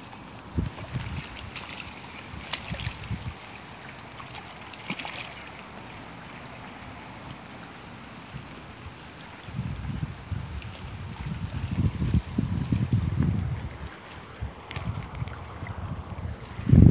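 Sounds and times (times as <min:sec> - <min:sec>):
fish splashing in water: 0:00.0 - 0:09.1, 0:13.9 - 0:16.2
wind on microphone: 0:00.4 - 0:03.4, 0:08.3 - 0:16.9.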